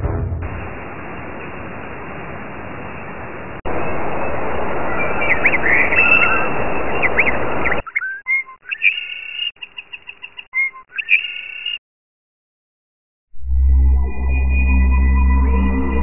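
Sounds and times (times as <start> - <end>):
bird chirps and whistles: 5.0 - 11.8.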